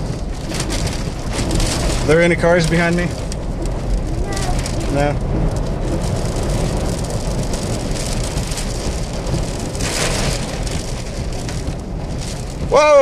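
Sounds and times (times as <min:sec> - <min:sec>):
gusting wind: 0:00.0 - 0:13.0
low rumble: 0:00.0 - 0:13.0
rain: 0:00.0 - 0:13.0.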